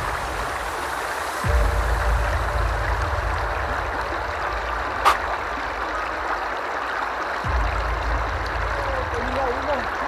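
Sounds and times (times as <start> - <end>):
river rushing over rocks: 0.0 - 1.8.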